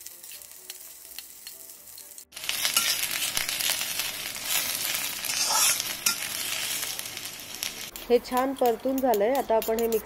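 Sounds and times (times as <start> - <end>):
food sizzling in oil: 0.0 - 10.0
spatula scraping a pan: 4.5 - 6.3.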